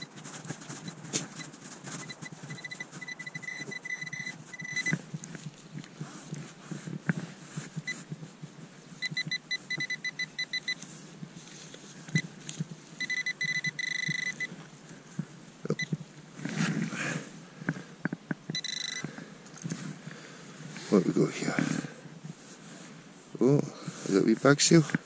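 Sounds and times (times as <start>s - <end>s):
metal detector pulsed beeps: 0.0s - 0.2s, 0.8s - 5.0s, 9.0s - 10.8s, 13.0s - 14.5s, 18.5s - 19.1s
metal detector steady tone: 0.0s - 5.4s, 6.4s - 8.2s, 8.9s - 11.0s, 11.6s - 14.6s, 18.5s - 19.2s.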